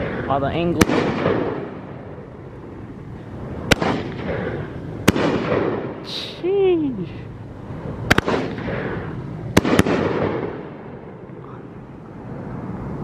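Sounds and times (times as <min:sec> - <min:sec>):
rolling echo: 0:00.0 - 0:06.0, 0:07.8 - 0:11.7.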